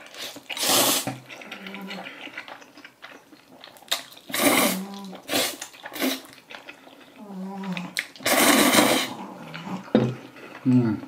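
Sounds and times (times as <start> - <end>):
chewing: 0.0 - 11.0
person slurping noodles: 0.1 - 2.3, 4.3 - 6.3, 7.4 - 9.9.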